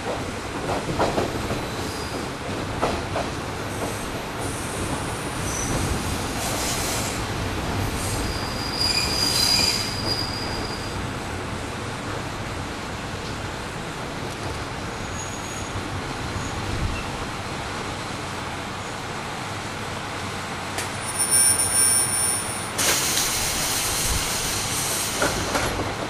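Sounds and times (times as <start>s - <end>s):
loud air hiss: 3.8s - 7.3s, 21.4s - 25.6s
thin high squeal: 21.0s - 23.3s.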